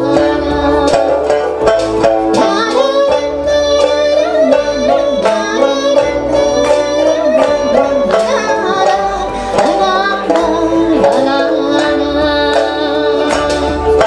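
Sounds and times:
plucked lute notes: 0:00.0 - 0:14.0
woman singing: 0:00.0 - 0:14.0.

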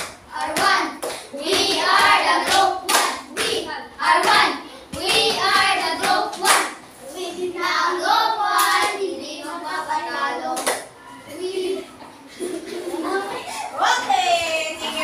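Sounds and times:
children singing together: 0:00.3 - 0:12.0.

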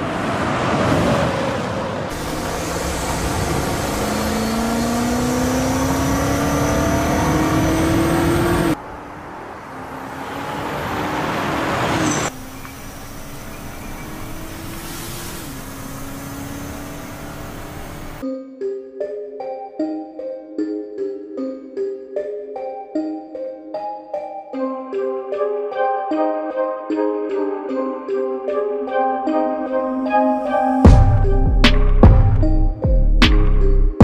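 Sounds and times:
engine accelerating hard: 0:00.0 - 0:18.2.

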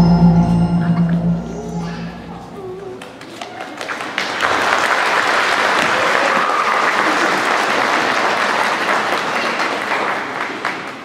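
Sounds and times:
audience applauding: 0:03.0 - 0:11.0.

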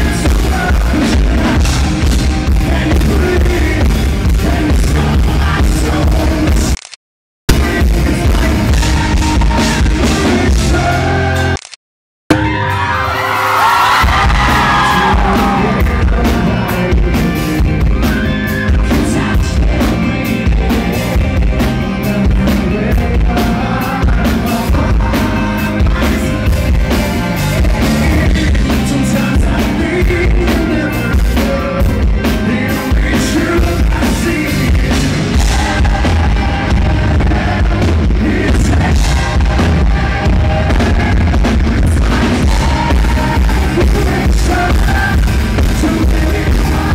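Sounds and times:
heavy bass and drums: 0:00.0 - 0:06.8, 0:07.5 - 0:11.6, 0:12.3 - 0:46.9
man singing: 0:00.0 - 0:06.8, 0:07.5 - 0:11.6, 0:14.0 - 0:46.9
distorted live rock band: 0:00.0 - 0:06.9, 0:07.5 - 0:11.7, 0:12.3 - 0:46.9.

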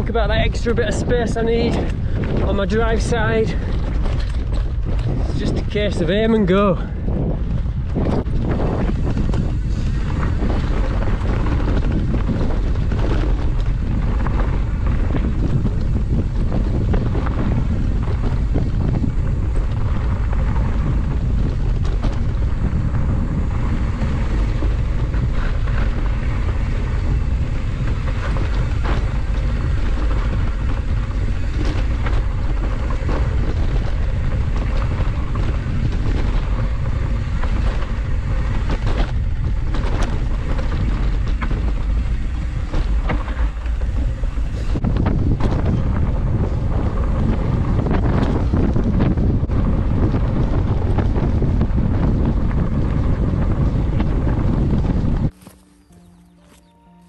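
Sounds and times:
bike knocks and rattles: 0:00.0 - 0:55.9
bike tyres rumbling on dirt: 0:00.0 - 0:56.6
wind buffeting microphone: 0:00.0 - 0:56.7.

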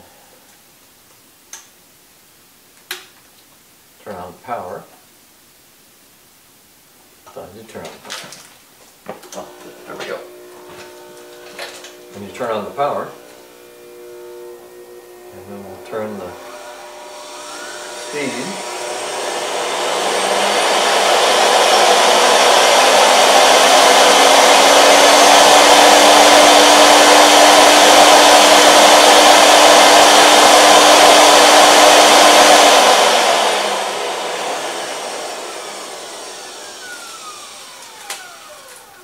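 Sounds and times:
air blower rushing whine: 0:09.3 - 0:39.0.

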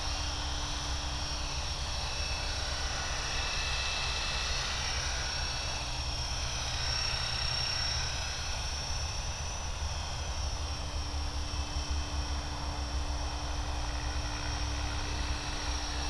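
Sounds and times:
helicopter motor whine: 0:00.0 - 0:16.0.

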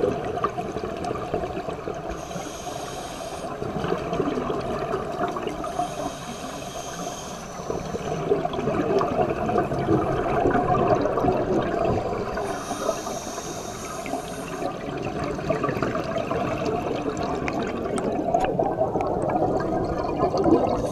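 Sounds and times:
underwater air bubbles gurgling: 0:00.0 - 0:20.9
high hiss: 0:02.2 - 0:03.5, 0:05.7 - 0:08.1, 0:12.4 - 0:14.7.

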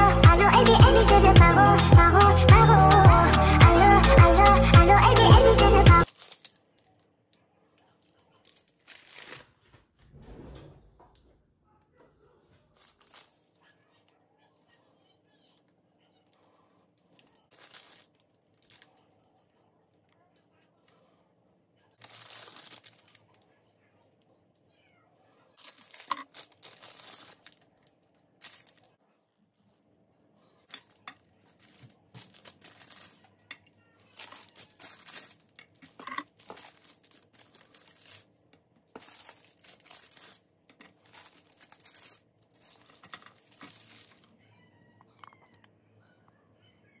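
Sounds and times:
wrappers tearing and crinkling: 0:06.0 - 0:07.0, 0:07.9 - 0:09.9, 0:12.7 - 0:13.7, 0:17.0 - 0:19.2, 0:22.0 - 0:23.4, 0:25.6 - 0:29.0, 0:30.6 - 0:38.3, 0:38.9 - 0:44.3.

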